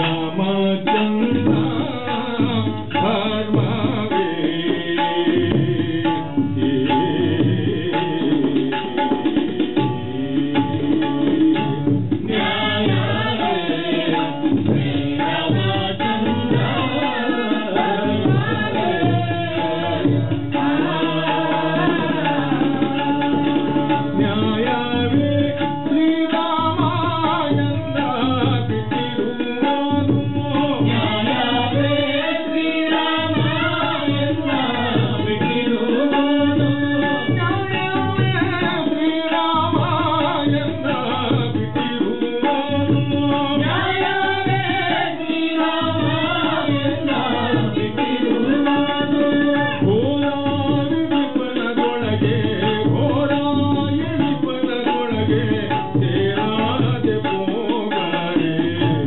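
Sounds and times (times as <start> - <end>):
hand drums steady rhythm: 0.0 - 59.0.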